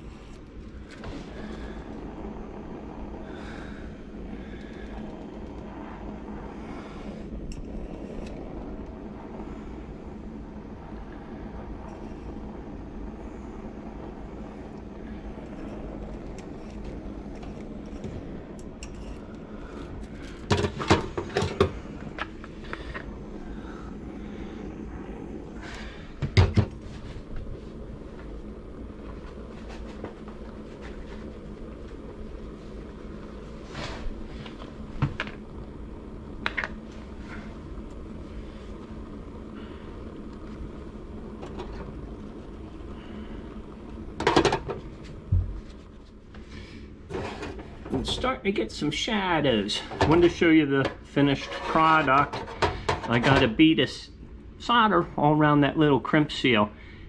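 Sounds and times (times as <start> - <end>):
steady low hum: 0.0 - 57.0
torch knocked onto table: 26.2 - 26.8.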